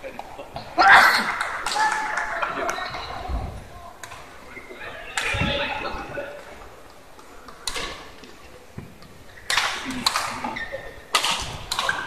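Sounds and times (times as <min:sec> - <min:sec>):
sharp clicks echoing in a hall: 0:11.1 - 0:12.0.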